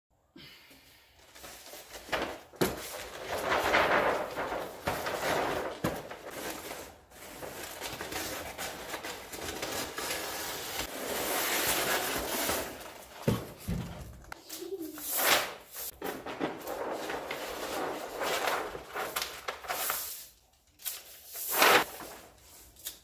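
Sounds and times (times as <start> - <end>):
paper rustling and crinkling: 1.2 - 23.0
paper sheets knocking: 2.0 - 6.9, 13.1 - 14.4, 16.0 - 19.8.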